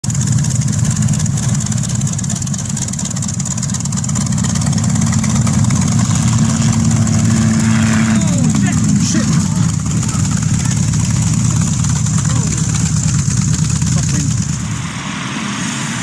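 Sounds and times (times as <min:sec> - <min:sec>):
propeller aircraft engine droning: 0:00.0 - 0:16.0.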